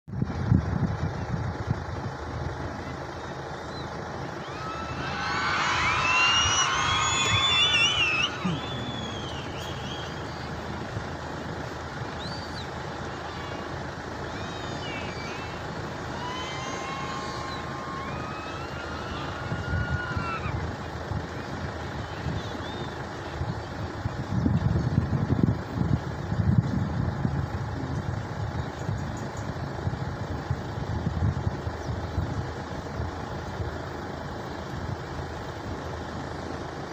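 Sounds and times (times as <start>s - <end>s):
engine drone: 0.1s - 36.9s
high whistling tones sliding in pitch: 4.4s - 10.5s
wind buffeting microphone: 19.0s - 33.2s.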